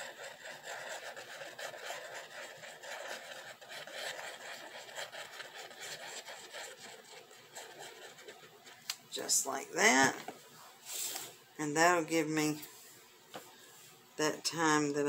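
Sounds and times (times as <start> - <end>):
glue nozzle scraping paper: 0.0 - 8.4.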